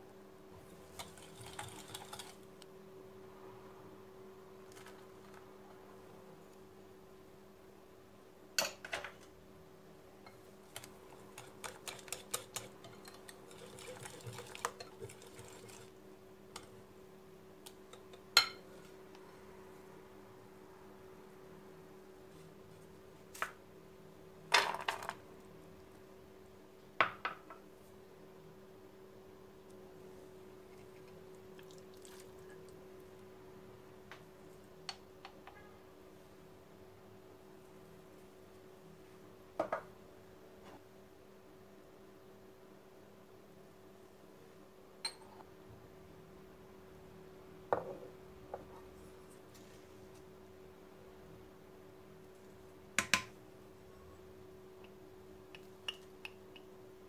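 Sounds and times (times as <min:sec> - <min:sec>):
faint steady hum: 0:00.0 - 0:57.0
whisk clicking against glass bowl: 0:10.8 - 0:15.8.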